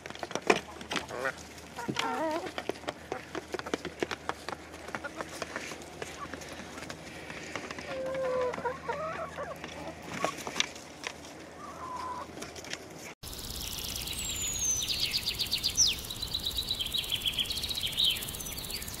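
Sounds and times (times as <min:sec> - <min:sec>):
hens pecking: 0:00.0 - 0:14.0
songbirds singing: 0:13.2 - 0:19.0.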